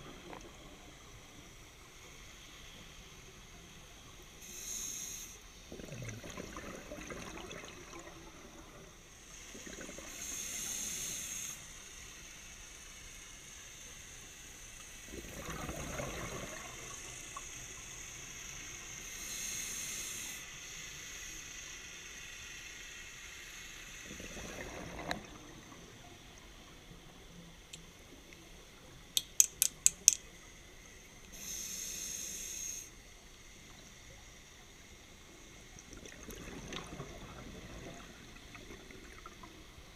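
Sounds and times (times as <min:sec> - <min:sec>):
exhaled bubbles rushing: 0:05.7 - 0:08.9, 0:15.1 - 0:17.1, 0:24.1 - 0:25.8, 0:35.8 - 0:39.9
sharp clicks: 0:29.2 - 0:30.3
scuba regulator breathing: 0:31.3 - 0:32.9.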